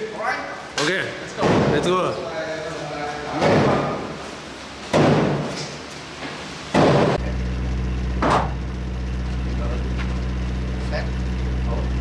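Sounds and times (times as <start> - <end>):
low hum: 7.2 - 12.0.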